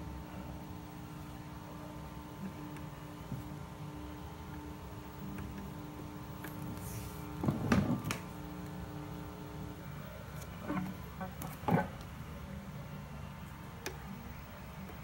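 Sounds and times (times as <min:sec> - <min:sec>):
faint electrical hum: 0:00.0 - 0:15.0.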